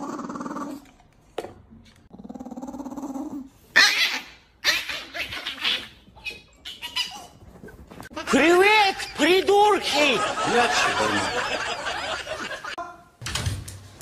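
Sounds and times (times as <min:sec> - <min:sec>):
dog growling: 0:00.0 - 0:00.9, 0:02.1 - 0:03.5.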